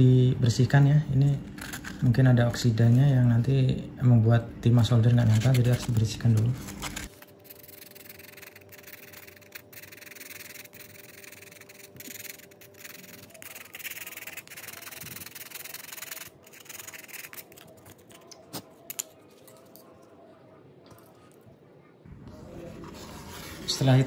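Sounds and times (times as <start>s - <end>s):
sandpaper scratching metal: 5.2s - 17.7s.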